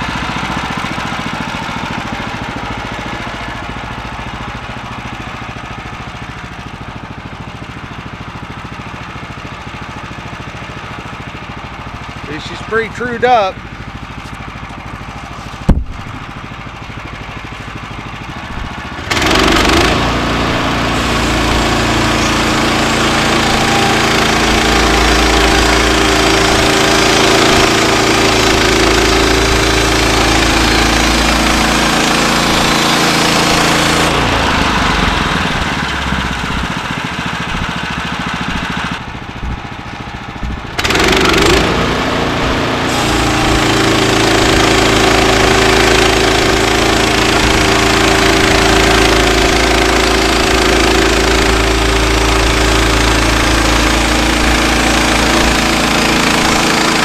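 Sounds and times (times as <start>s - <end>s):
small gas engine running: 0.0s - 57.0s
band saw blade cutting log: 12.3s - 13.5s, 19.0s - 35.8s, 40.8s - 57.0s.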